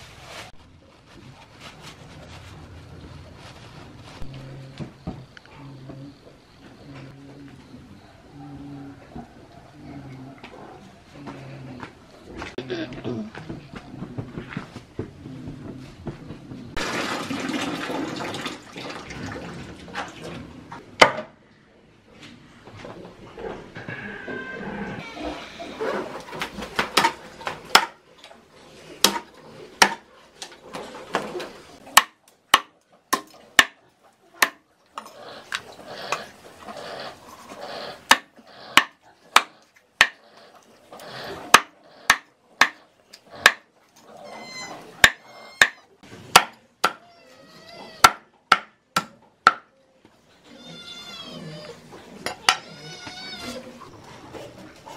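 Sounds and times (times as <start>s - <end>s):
water splashing in plastic basin: 16.8s - 20.7s
cleaver chopping on wooden block: 31.9s - 33.8s, 34.4s - 34.6s, 38.1s - 40.2s, 41.5s - 42.8s, 43.4s - 43.6s, 45.0s - 47.0s, 48.0s - 49.7s.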